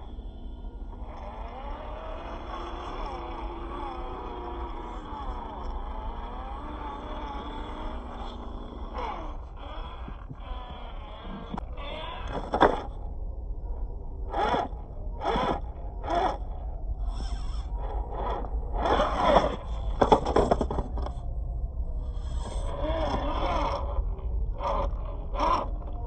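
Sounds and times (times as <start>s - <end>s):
electric motor whining: 0.0s - 26.0s
tyres scraping on dirt: 18.3s - 21.2s.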